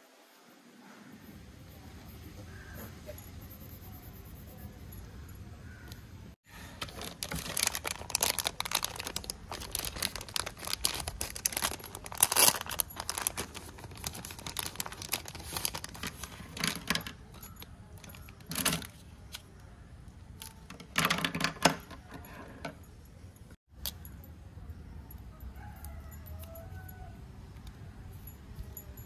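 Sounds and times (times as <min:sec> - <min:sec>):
plastic bag crinkling: 0:06.5 - 0:19.0.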